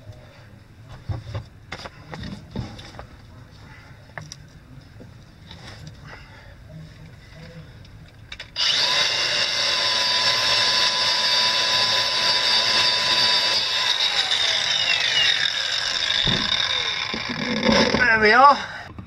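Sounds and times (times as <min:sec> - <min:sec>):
angle grinder with wire brush whining: 0:08.6 - 0:18.8.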